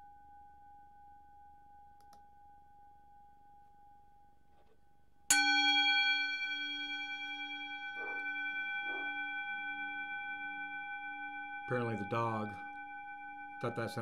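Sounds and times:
singing bowl ringing: 5.3 - 14.0
dog barking: 8.0 - 9.2.

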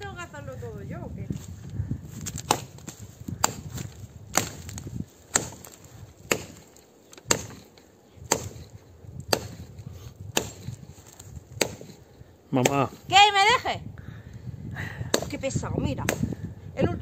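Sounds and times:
axe chopping log: 2.2 - 12.0, 12.6 - 13.0, 15.1 - 16.4.

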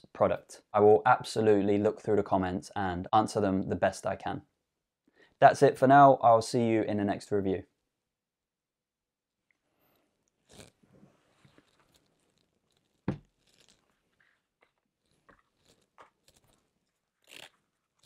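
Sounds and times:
playing cards rustling and clicking: 11.4 - 17.6.

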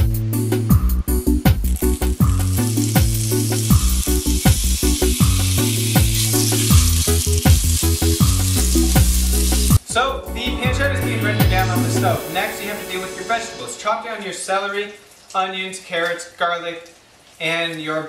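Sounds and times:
meat sizzling in a pot: 0.8 - 9.8.

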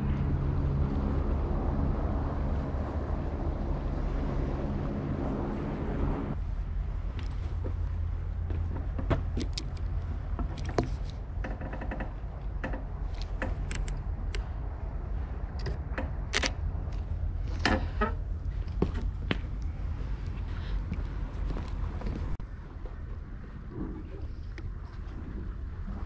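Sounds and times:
low outdoor rumble: 0.0 - 26.0
footsteps and camera handling clicks: 13.1 - 14.4, 15.5 - 17.1.

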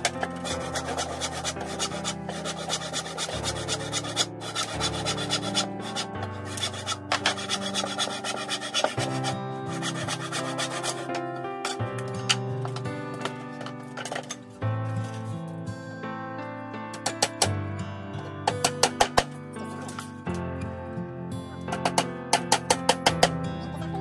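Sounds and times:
handsaw cutting wood: 0.0 - 11.8
background music: 0.0 - 24.0.

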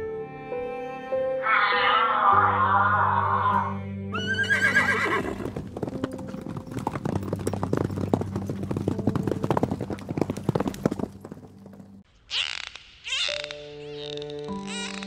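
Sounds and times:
horse whinnying: 1.4 - 5.8
horses galloping on dirt: 4.3 - 12.1.

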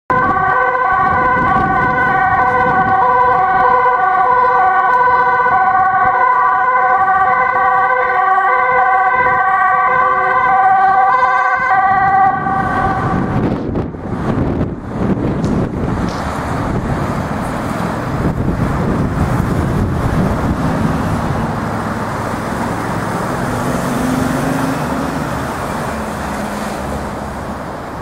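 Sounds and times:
road traffic noise: 0.1 - 28.0
two-tone ambulance sirens: 0.1 - 28.0.

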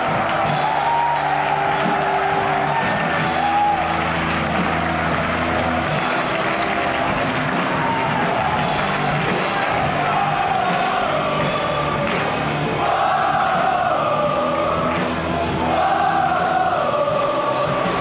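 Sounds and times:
backing music: 0.0 - 18.0
boys singing in unison: 12.7 - 18.0.

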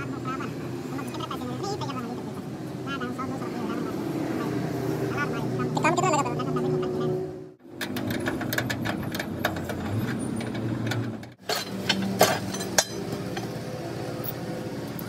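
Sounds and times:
mechanical clicks and clanks: 7.7 - 13.6.

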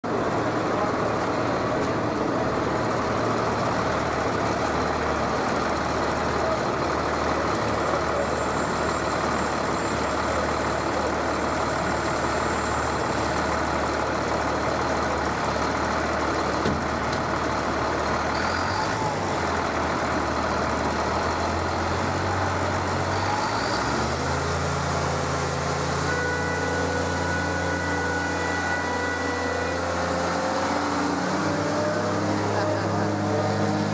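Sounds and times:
truck engine driving past: 0.0 - 33.9.

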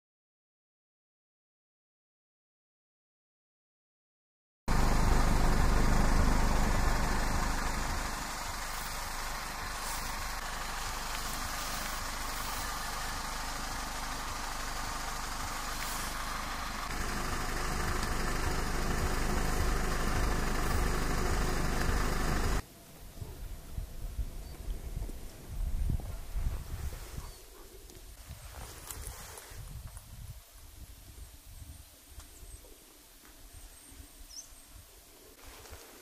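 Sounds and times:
wind buffeting microphone: 23.2 - 31.9.

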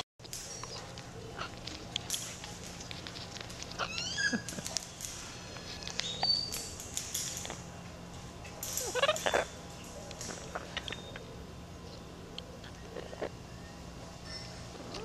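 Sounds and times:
parrot beak clicking on cage wire: 0.2 - 7.7, 8.4 - 11.2
parrot squeak: 3.8 - 4.4, 8.9 - 9.4.

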